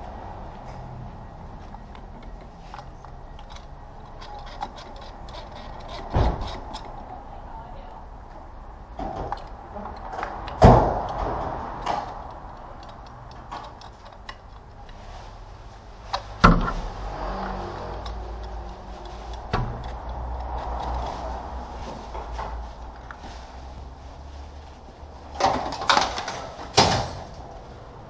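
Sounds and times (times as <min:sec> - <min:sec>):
light ticking: 0:17.8 - 0:21.0.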